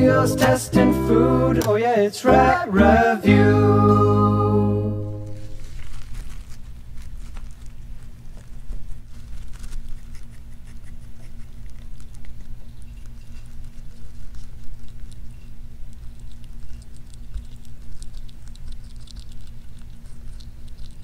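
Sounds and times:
low steady hum: 0:00.0 - 0:21.0
rat gnawing and chewing: 0:05.3 - 0:21.0.

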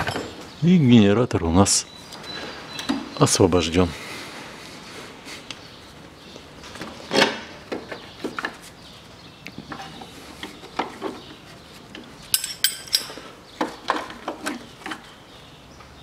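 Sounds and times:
sharp metallic clinks: 0:12.3 - 0:13.2.

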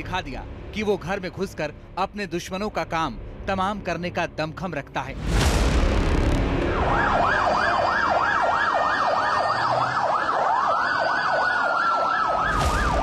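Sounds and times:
siren wailing: 0:06.6 - 0:13.0
siren yelping: 0:06.7 - 0:13.0.

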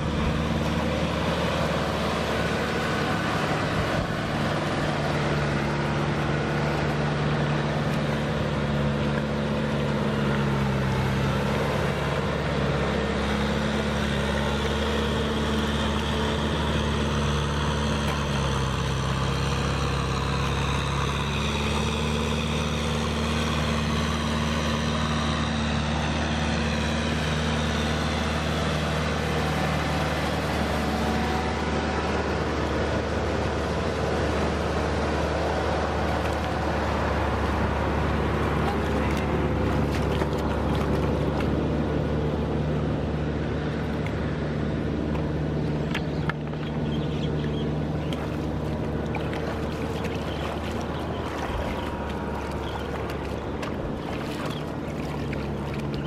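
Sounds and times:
motor humming: 0:44.8 - 0:56.0.

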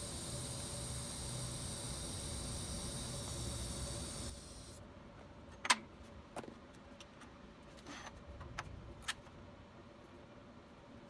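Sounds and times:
welding arc hissing: 0:00.0 - 0:04.8.

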